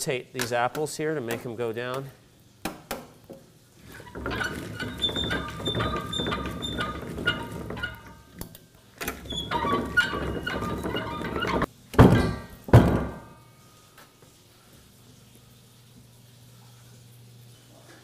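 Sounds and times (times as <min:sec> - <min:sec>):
roller mill clattering: 0:03.9 - 0:08.4, 0:09.1 - 0:13.3
faint high squeaks: 0:04.0 - 0:08.3, 0:09.2 - 0:11.7
heavy thumps: 0:09.3 - 0:13.3.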